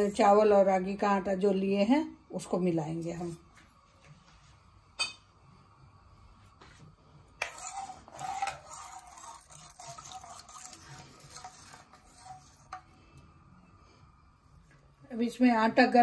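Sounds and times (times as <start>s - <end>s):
spoon scraping a pan: 7.4s - 13.2s.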